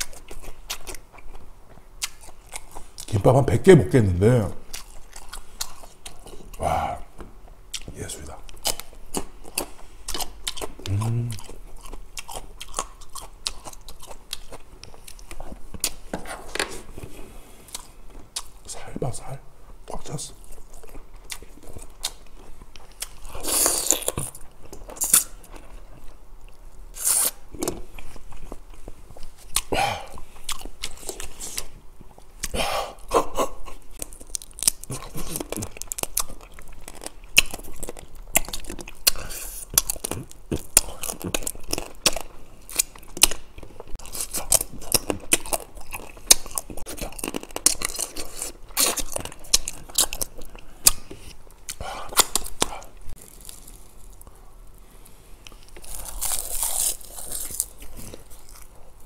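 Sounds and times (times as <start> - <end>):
chewing: 0.0 - 3.2, 4.6 - 18.7, 19.8 - 54.4.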